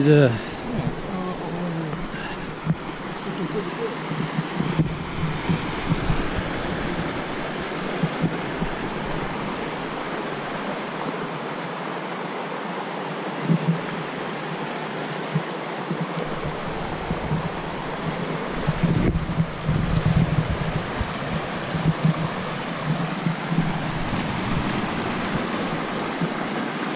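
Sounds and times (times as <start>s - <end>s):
stream tumbling over rocks: 0.0s - 26.9s.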